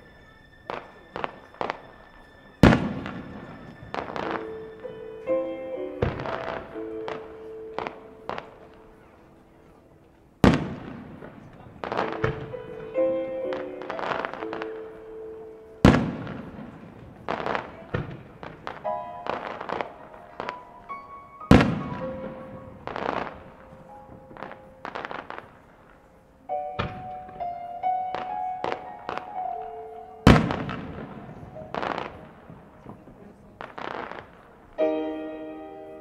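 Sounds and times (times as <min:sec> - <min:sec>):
background music: 0:00.0 - 0:32.8, 0:33.6 - 0:36.0
firework shells bursting: 0:21.5 - 0:22.2.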